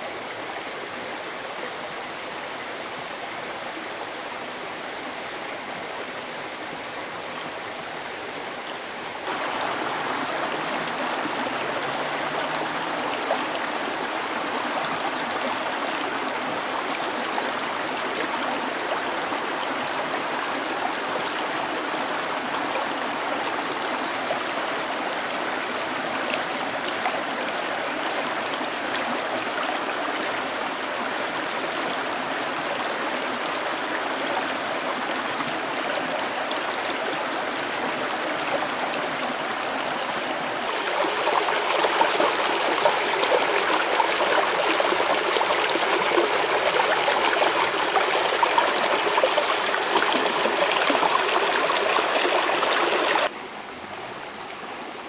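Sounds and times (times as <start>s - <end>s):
stream running: 0.0s - 55.0s.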